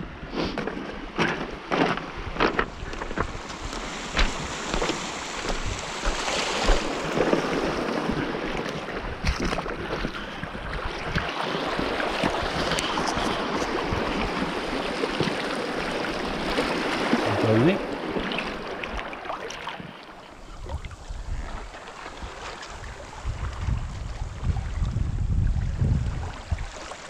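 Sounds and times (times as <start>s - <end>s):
waves washing over pebbles: 0.6s - 24.3s
footsteps crunching on shingle: 1.9s - 7.5s
wind on microphone: 2.1s - 18.3s, 20.4s - 26.9s
water splashing around hands: 3.8s - 10.2s.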